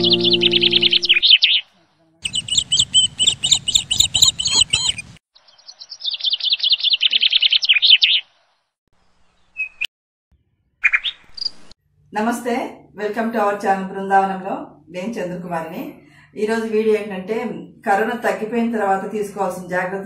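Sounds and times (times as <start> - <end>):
soft harp-like tune: 0.0 - 1.1
songbird trilling: 0.0 - 1.6, 2.2 - 8.3.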